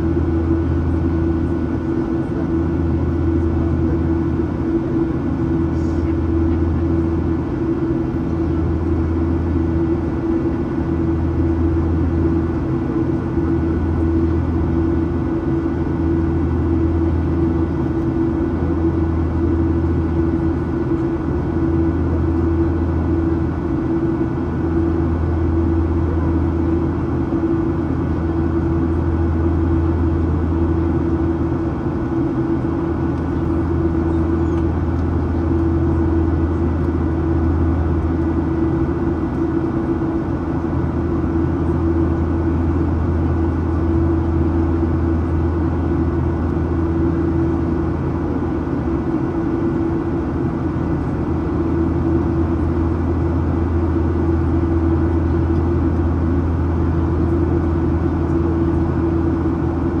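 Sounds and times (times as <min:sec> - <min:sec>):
airplane cabin engine drone: 0:00.0 - 1:00.0.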